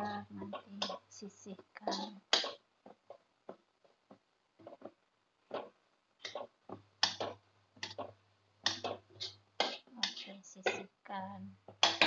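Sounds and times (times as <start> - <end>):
metal spatula scraping a wok: 9.1 - 10.2.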